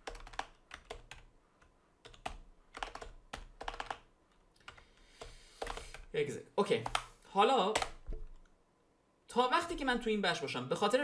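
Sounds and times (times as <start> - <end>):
computer keyboard clicking: 0.0 - 6.1, 6.8 - 7.1, 7.7 - 8.5.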